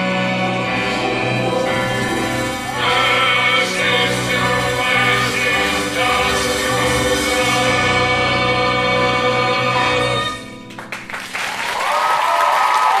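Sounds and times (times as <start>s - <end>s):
cast and band holding a sung chord: 0.0s - 10.6s
audience applause: 1.5s - 7.8s, 10.7s - 13.0s.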